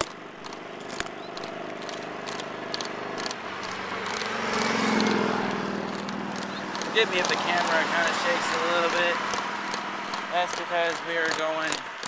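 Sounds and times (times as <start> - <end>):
bicycle rattling: 0.0 - 12.0
bicycle tyre road noise: 0.0 - 12.0.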